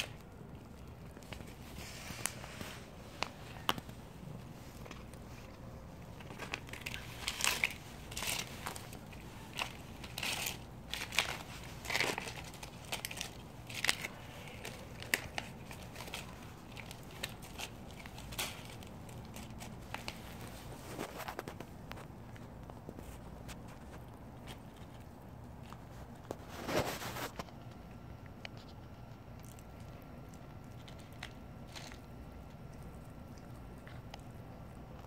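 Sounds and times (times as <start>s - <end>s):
plastic pouch crinkling: 0.0s - 27.4s.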